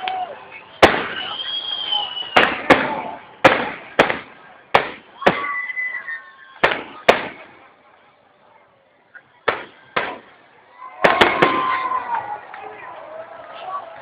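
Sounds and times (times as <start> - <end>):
firework shells bursting: 2.2 - 5.5, 6.6 - 7.7.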